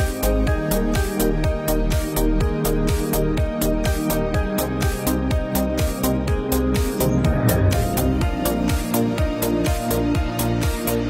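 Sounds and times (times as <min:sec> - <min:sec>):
electronic music with steady beat: 0:02.0 - 0:09.9.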